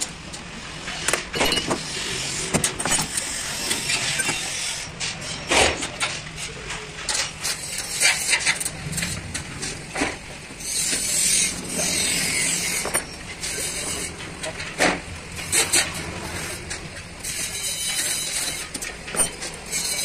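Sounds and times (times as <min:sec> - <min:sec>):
low hum of road traffic: 0:00.0 - 0:20.0
metal tools clicking and clinking: 0:01.0 - 0:01.9, 0:11.6 - 0:20.0.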